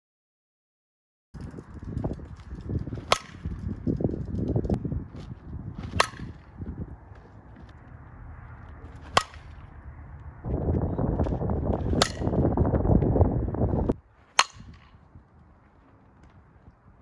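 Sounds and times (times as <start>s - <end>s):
loud low rumble: 1.5s - 14.0s
bat hitting softball: 2.8s - 3.6s, 5.7s - 6.6s, 8.8s - 9.6s, 11.2s - 12.6s, 14.3s - 15.0s.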